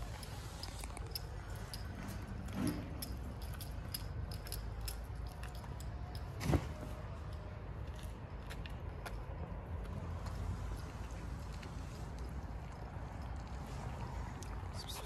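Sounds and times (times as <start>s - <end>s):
cat chewing wet food: 7.9s - 14.6s.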